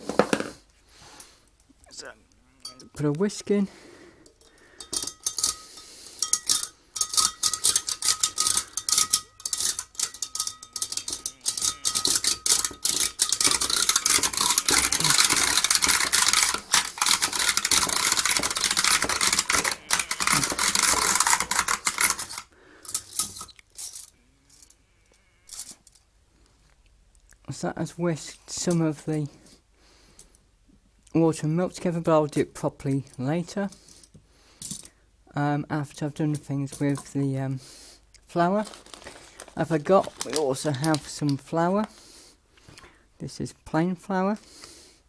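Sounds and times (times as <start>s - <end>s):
metal whisk rattling in glass jug: 4.4s - 23.5s.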